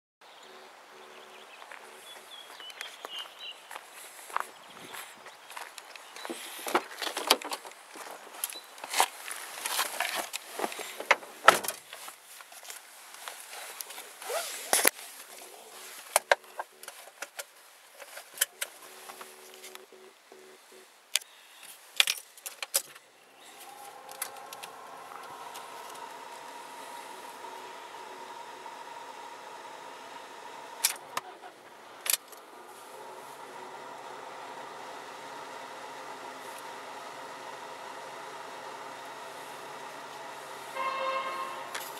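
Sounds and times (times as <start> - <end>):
faint steady hum: 0.2 - 22.2, 23.0 - 41.9
car engine idling: 23.0 - 41.9.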